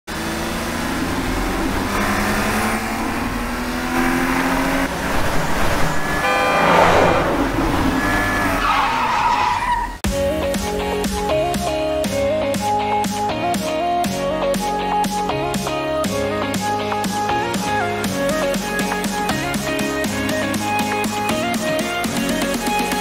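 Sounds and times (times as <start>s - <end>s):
sports car engine revving: 0.1s - 8.7s
tyres squealing: 5.0s - 10.0s.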